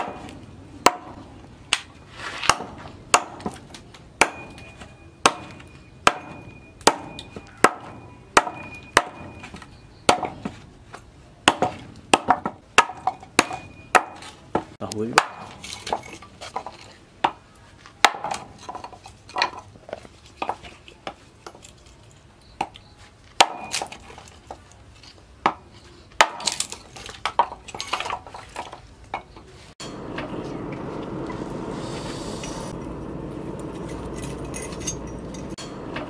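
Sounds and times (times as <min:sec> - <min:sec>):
axe chopping wood: 0:00.0 - 0:10.6, 0:11.4 - 0:17.4, 0:18.0 - 0:19.6, 0:23.4 - 0:24.2, 0:26.2 - 0:28.8
steady background noise: 0:00.0 - 0:36.0.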